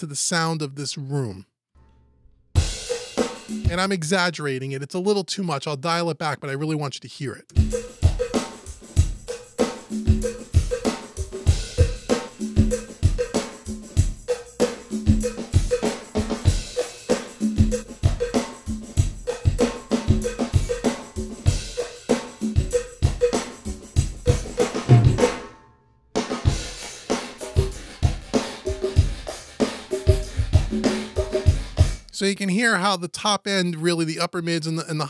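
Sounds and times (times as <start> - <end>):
drum kit groove with reverb: 2.6 - 4.1, 7.5 - 25.5, 26.2 - 32.1.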